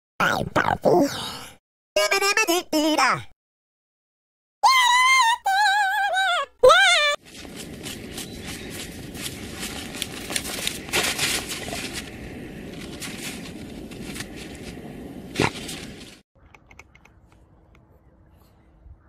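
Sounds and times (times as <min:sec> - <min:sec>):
paws scraping through snow: 0:07.2 - 0:16.2
faint clicks: 0:16.4 - 0:17.9.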